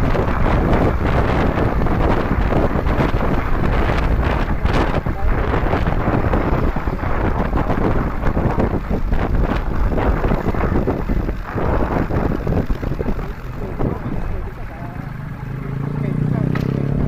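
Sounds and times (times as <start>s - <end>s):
vehicle noise: 0.0s - 17.0s
wind buffeting microphone: 0.0s - 17.0s.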